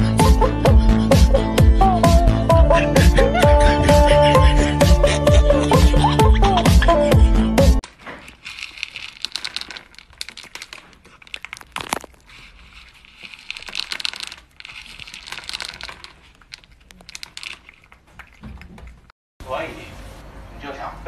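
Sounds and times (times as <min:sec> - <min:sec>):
cat crunching dry kibble: 0:07.8 - 0:19.1
kibble rattling against plastic bowl: 0:07.9 - 0:19.0.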